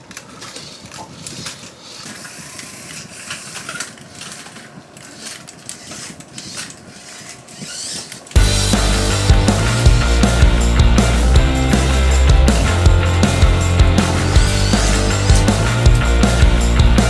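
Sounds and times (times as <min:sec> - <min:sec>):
toy cars bumping track: 0:00.0 - 0:08.4
small electric motors whirring: 0:00.2 - 0:08.4.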